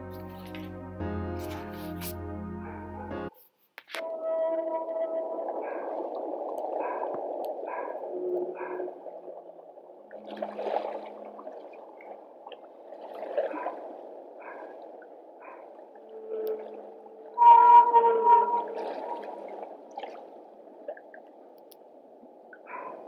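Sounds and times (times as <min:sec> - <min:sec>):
whale calls underwater: 0:04.0 - 0:09.5, 0:15.4 - 0:19.6.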